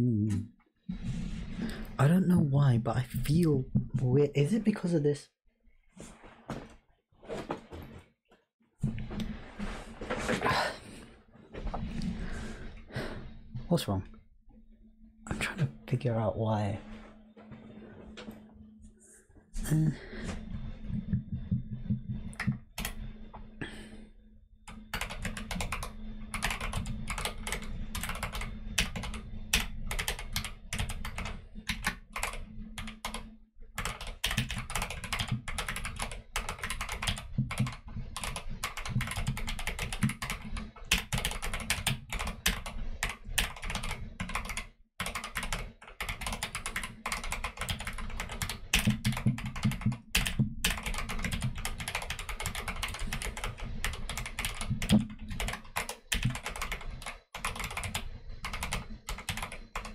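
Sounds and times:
mechanical keyboard typing: 24.7 - 33.2, 33.8 - 59.9.

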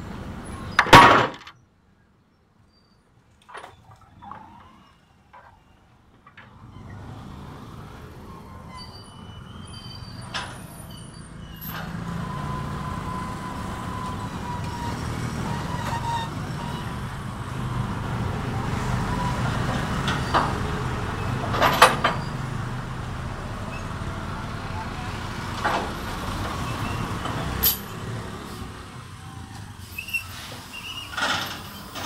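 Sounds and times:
sharp metal clanks: 0.8 - 1.5
truck diesel engine rumbling: 6.4 - 32.0.

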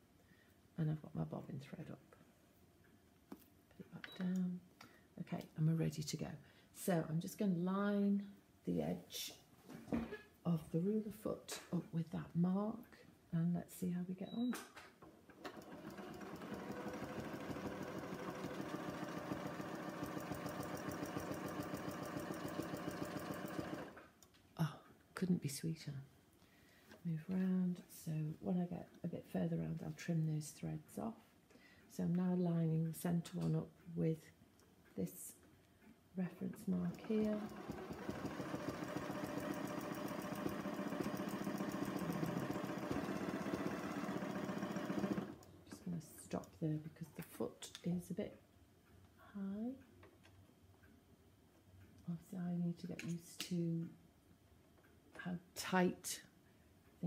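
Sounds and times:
sewing machine stitching: 15.3 - 24.1, 36.5 - 45.8.

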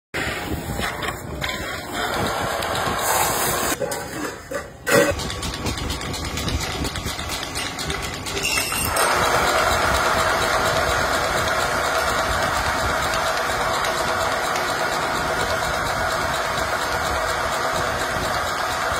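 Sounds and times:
metal scraping on spinning lathe: 6.0 - 18.9.

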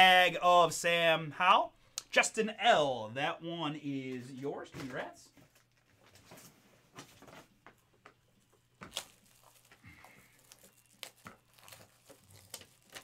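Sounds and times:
wrappers crinkling and rustling: 5.4 - 13.0.

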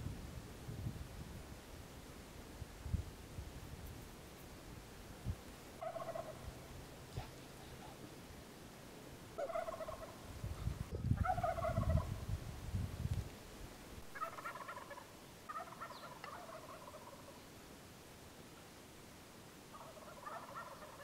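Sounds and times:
turkey gobbling: 5.8 - 6.6, 9.3 - 10.2, 10.9 - 12.2, 14.1 - 17.4, 19.7 - 21.0.

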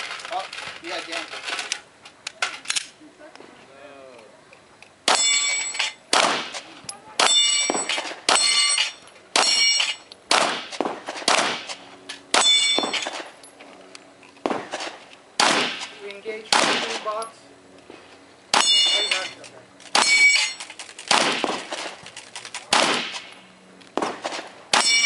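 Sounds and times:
steel plate ringing clang: 5.1 - 6.0, 7.2 - 10.1, 12.3 - 13.1, 18.6 - 19.4, 20.0 - 20.6, 24.7 - 25.0
handgun shots: 6.1 - 6.6, 7.2 - 13.3, 14.4 - 15.9, 16.5 - 17.0, 19.9 - 22.0, 22.6 - 23.3.

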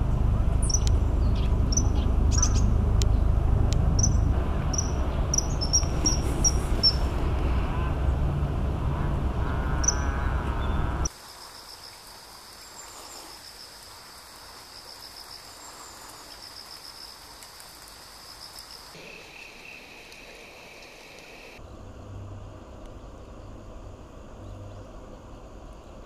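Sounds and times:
insects trilling: 4.0 - 7.1, 9.8 - 10.1, 11.0 - 21.6.

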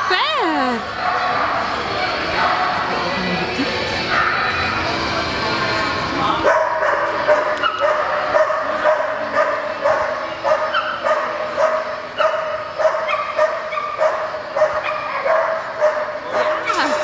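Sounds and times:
dog barking: 6.4 - 17.0.

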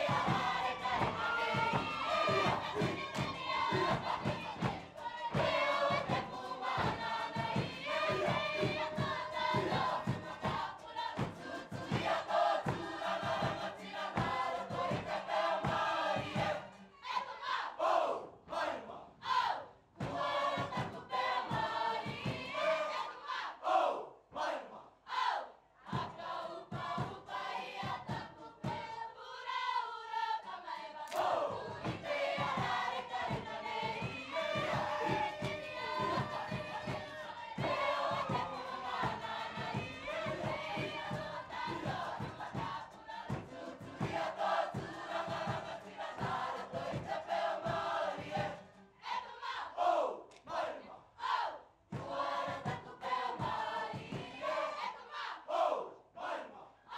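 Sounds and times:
regular drum beat: 0.0 - 15.1
group singing together: 0.0 - 56.9.

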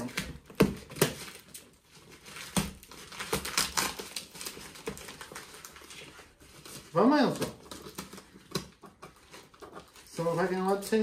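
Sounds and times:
scissors snipping paper: 0.0 - 5.8
paper crinkling and rustling: 0.0 - 11.0.

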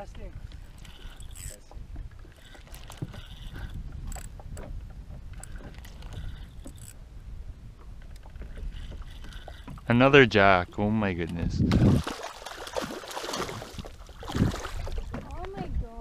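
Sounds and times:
low wind noise: 0.0 - 16.0
water noise: 0.0 - 16.0
rod and reel clicking: 0.4 - 4.7, 5.3 - 7.0, 8.1 - 9.9.

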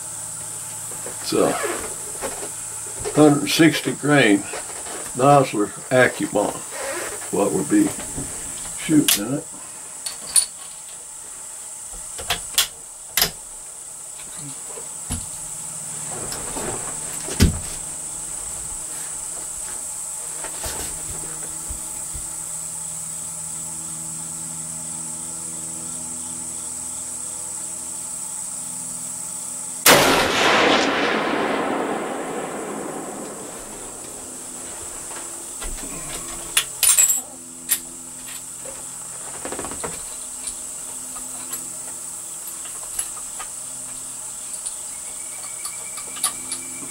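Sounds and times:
rifle shot: 29.8 - 35.0.

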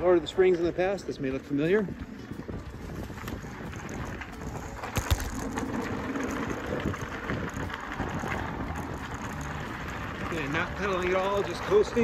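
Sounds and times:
bicycle tyres rolling over gravel: 0.0 - 12.0
wind on microphone: 1.1 - 10.7.

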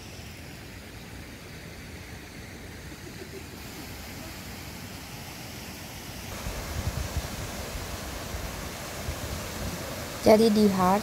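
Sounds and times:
small waterfall rushing: 0.0 - 11.0
wind rumbling on microphone: 6.3 - 10.3.

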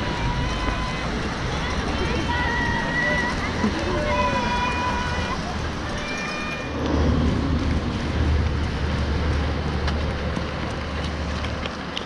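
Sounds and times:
wind buffeting microphone: 6.7 - 12.0.

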